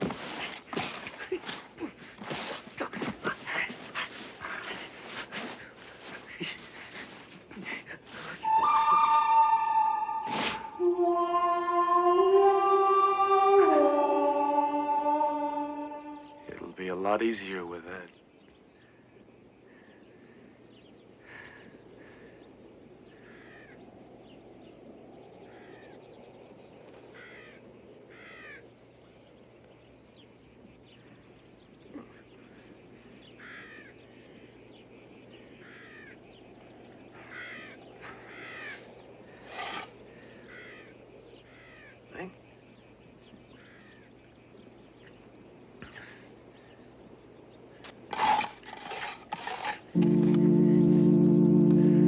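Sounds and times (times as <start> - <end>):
crows cawing: 23.1 - 23.8, 25.5 - 25.9, 27.1 - 28.6, 33.4 - 33.9, 35.6 - 36.2, 37.2 - 42.0, 43.6 - 44.1
shovel digging dry earth: 39.5 - 40.0, 47.8 - 50.0.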